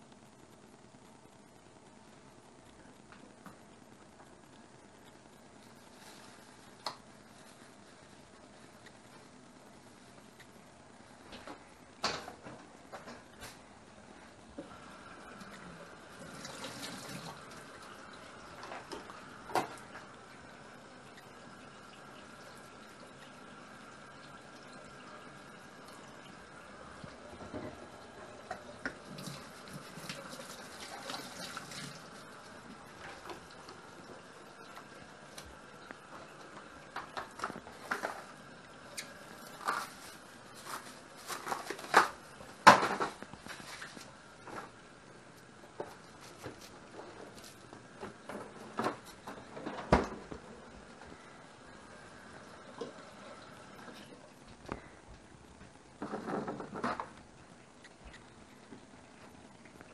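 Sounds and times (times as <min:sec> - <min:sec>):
handling rustles: 0:38.9 - 0:44.8.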